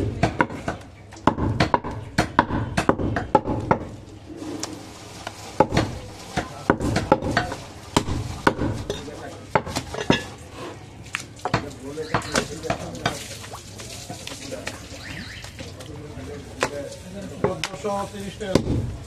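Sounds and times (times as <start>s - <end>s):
cleaver chopping on wooden block: 0.1s - 4.0s, 5.6s - 8.8s, 18.5s - 18.9s.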